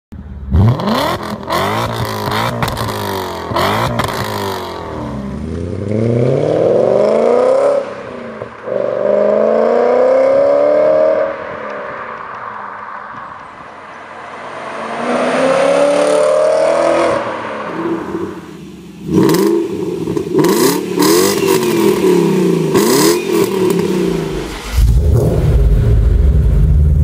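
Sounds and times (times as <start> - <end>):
car accelerating away: 0.5 - 12.5, 13.6 - 27.0
car engine revving: 0.5 - 27.0
exhaust cracks: 19.1 - 27.0.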